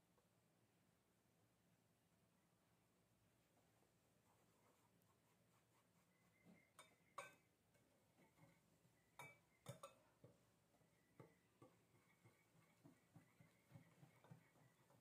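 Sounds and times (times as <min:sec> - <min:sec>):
whisk clinking against glass bowl: 0:06.7 - 0:07.4, 0:09.2 - 0:10.4.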